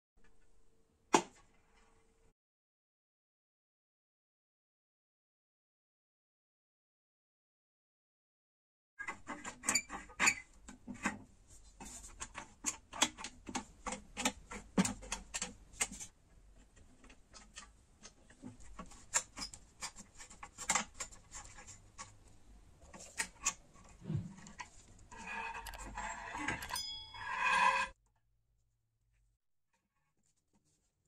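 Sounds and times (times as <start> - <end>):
small metal scrapes: 22.9 - 28.0.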